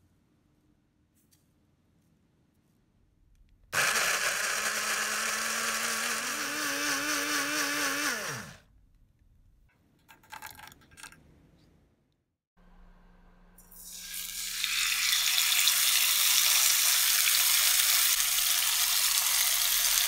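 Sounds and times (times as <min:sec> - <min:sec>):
blender motor running: 0:03.8 - 0:08.6, 0:14.2 - 0:20.0.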